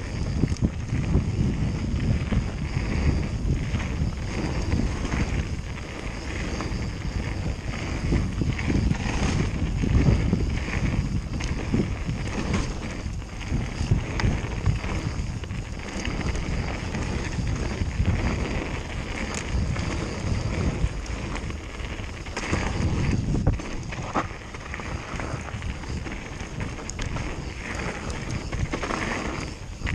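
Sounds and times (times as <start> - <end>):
bike rattling: 0.0 - 29.9
tyres rumbling on gravel: 0.0 - 29.9
wind buffeting microphone: 0.0 - 29.9.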